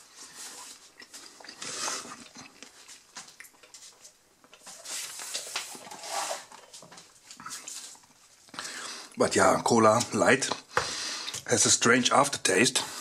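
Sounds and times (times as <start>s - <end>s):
paper cup and cardboard box rustling: 4.6s - 8.0s.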